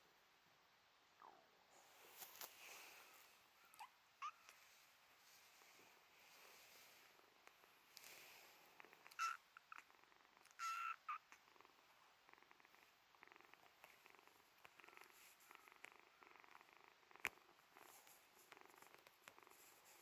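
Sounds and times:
kitten purring faintly: 0:01.1 - 0:20.0
kitten mewing: 0:09.1 - 0:09.4, 0:10.5 - 0:11.4.

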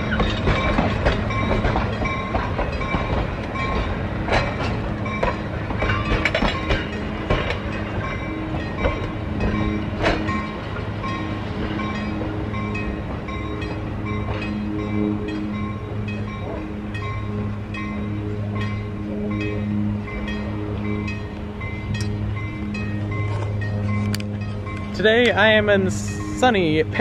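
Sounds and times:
train wheels clicking over rails: 0:00.0 - 0:15.5.

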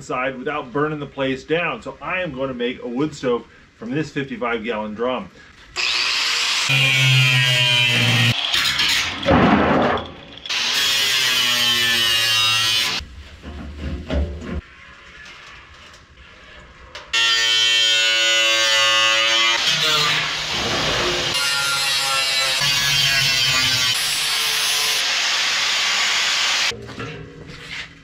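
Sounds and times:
angle grinder cutting steel: 0:05.8 - 0:09.3, 0:10.1 - 0:13.0, 0:17.1 - 0:26.7.

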